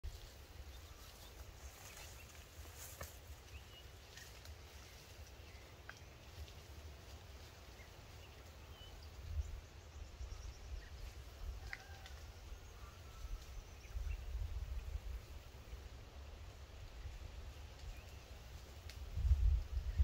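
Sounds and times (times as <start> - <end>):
wind on microphone: 19.0 - 20.0.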